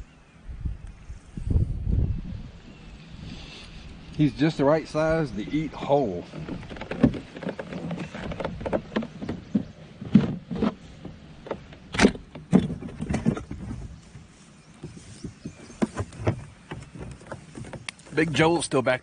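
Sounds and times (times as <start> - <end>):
fishing gear clicking and rattling: 6.2 - 14.0, 14.9 - 18.6.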